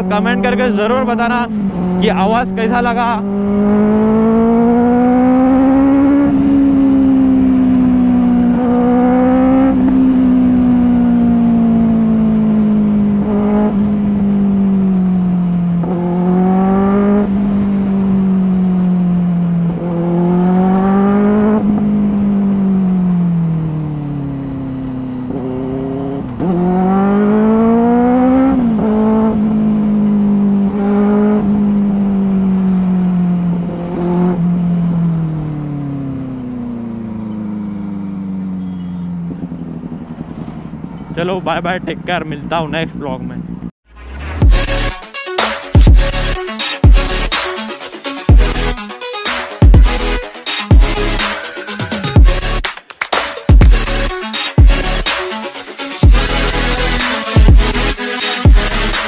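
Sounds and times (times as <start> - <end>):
motorcycle engine accelerating: 0.0 - 45.0, 45.7 - 52.7, 53.4 - 59.0.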